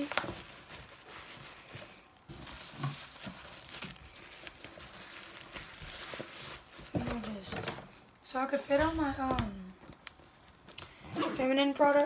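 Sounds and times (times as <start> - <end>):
bag crinkling and rustling: 0.0 - 7.5.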